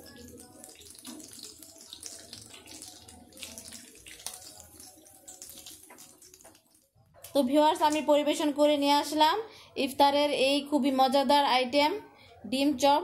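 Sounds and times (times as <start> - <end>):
oil sizzling and crackling: 0.0 - 7.0.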